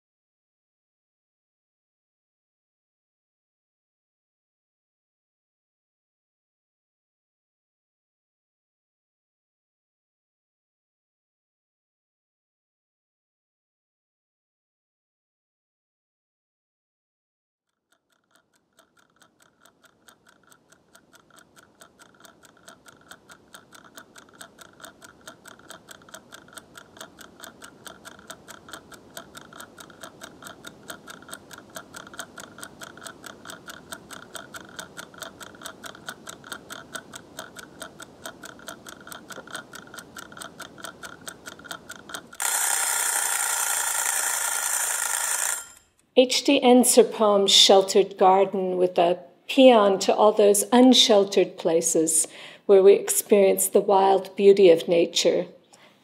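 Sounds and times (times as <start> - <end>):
kitchen timer ticking: 17.9 - 49.1, 49.9 - 55.3
timer bell ringing: 42.4 - 45.9.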